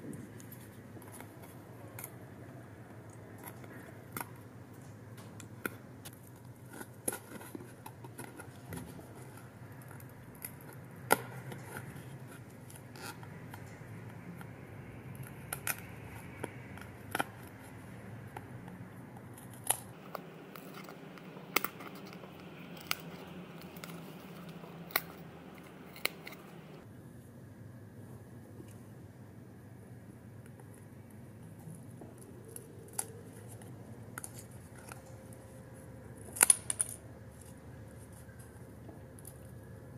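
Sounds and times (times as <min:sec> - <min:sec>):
cardstock clicking and snapping: 0:19.3 - 0:26.8.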